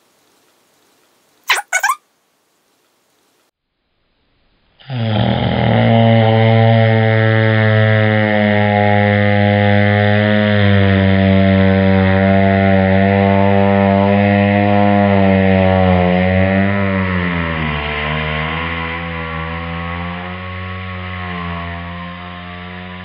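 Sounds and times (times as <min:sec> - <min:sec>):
fake fart buzzing: 0:01.5 - 0:02.0.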